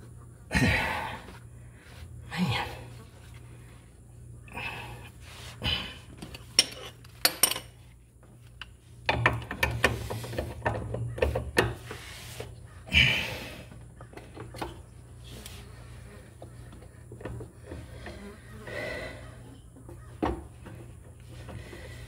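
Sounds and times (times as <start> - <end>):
metal clinks and knocks: 6.2 - 7.8.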